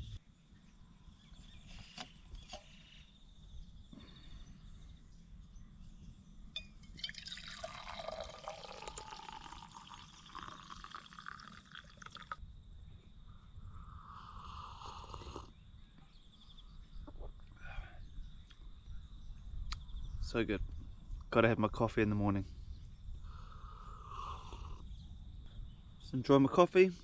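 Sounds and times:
coffee pouring into a cup: 0:06.9 - 0:12.4.

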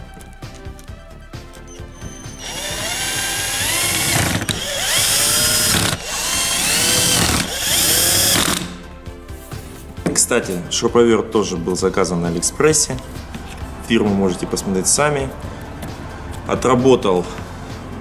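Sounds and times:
cordless drill motor whining: 0:01.7 - 0:08.8.

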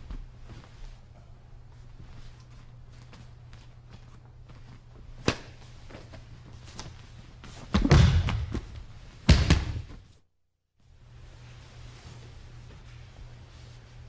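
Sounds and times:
low electrical hum: 0:00.0 - 0:14.0
heavy thuds on a mat: 0:07.7 - 0:09.9.

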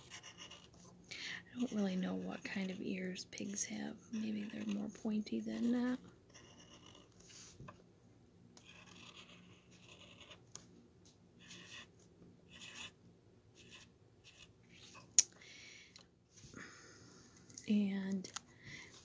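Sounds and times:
marker scratching on wood: 0:00.0 - 0:00.8, 0:01.6 - 0:07.6, 0:08.6 - 0:10.4, 0:11.4 - 0:11.9, 0:12.5 - 0:13.0, 0:13.6 - 0:15.0.

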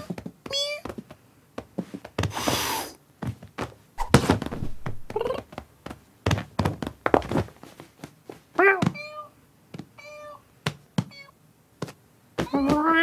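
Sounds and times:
cat hissing: 0:02.3 - 0:03.0
paws thumping on a sofa: 0:03.2 - 0:08.5
cat mewing: 0:10.0 - 0:10.4.

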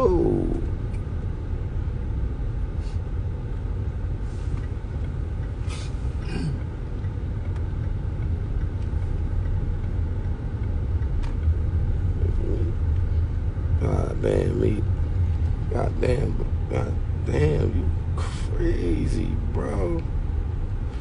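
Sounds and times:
low rumble: 0:00.0 - 0:21.0.

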